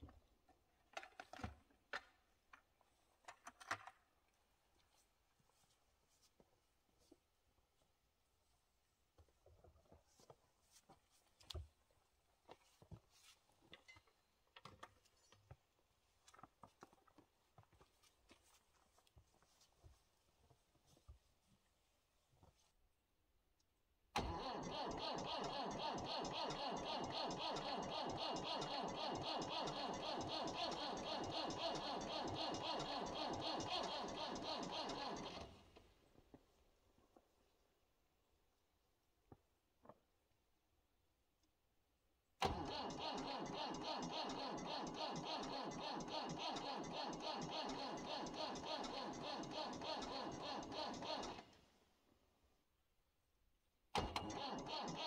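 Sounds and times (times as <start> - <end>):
starter motor cranking diesel engine: 24.2 - 35.6, 42.4 - 51.6, 54.0 - 55.0.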